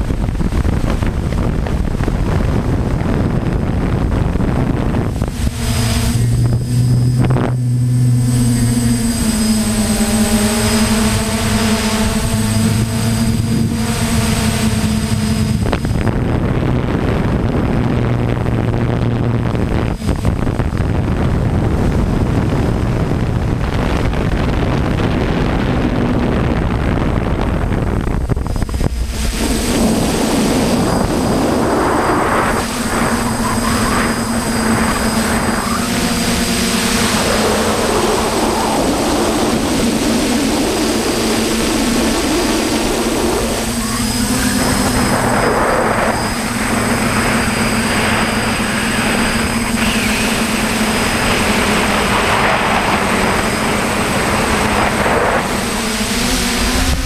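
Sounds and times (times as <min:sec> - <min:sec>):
drone motors humming: 0:00.0 - 0:57.0
thin high whine: 0:00.0 - 0:57.0
wind buffeting microphone: 0:00.0 - 0:57.0.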